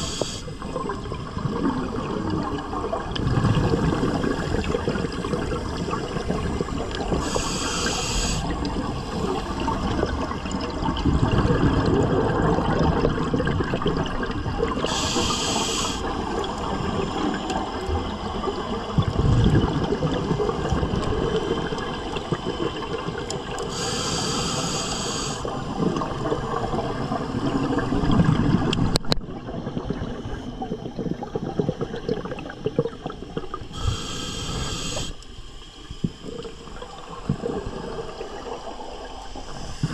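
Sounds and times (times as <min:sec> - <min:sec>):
hissing regulator inhale: 0:00.0 - 0:00.6, 0:07.1 - 0:10.0, 0:14.9 - 0:16.2, 0:23.6 - 0:25.5, 0:33.7 - 0:36.2, 0:39.4 - 0:39.9
exhaled air bubbling: 0:00.0 - 0:39.9.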